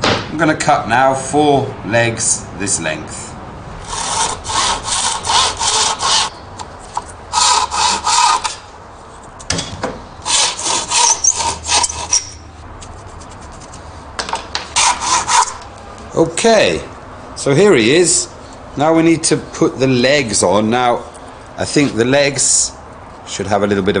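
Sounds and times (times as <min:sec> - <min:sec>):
hand saw cutting sticks: 0:03.8 - 0:08.7, 0:10.2 - 0:13.8, 0:14.6 - 0:15.7.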